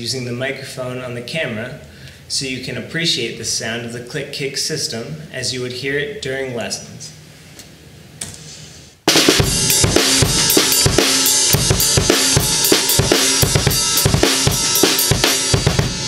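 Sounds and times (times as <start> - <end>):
drum kit groove: 9.0 - 16.0
cymbals: 9.1 - 16.0
snare drum: 9.1 - 16.0
muted kick drum: 9.4 - 16.0.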